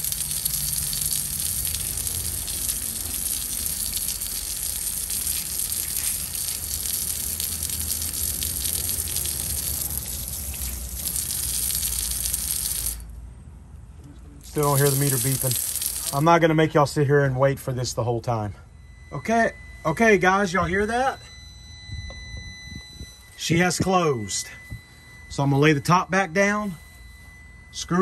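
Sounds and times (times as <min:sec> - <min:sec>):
hose water splashing on metal: 0:00.0 - 0:13.1, 0:14.4 - 0:16.3.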